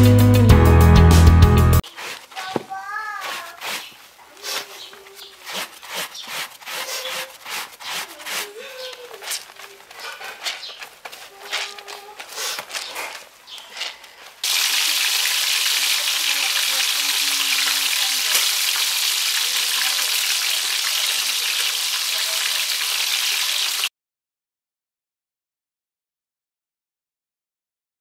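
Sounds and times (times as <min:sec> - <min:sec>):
clothes scrubbed in soapy water: 0:01.8 - 0:23.9
fish sizzling in hot oil: 0:14.4 - 0:23.9.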